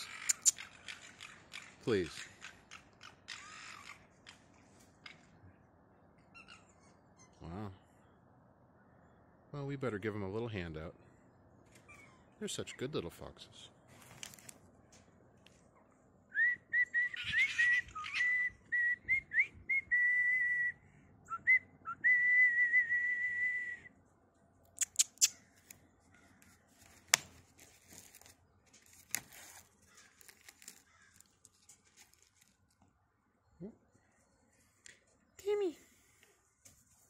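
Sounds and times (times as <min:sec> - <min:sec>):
person whistling: 0:16.4 - 0:23.9.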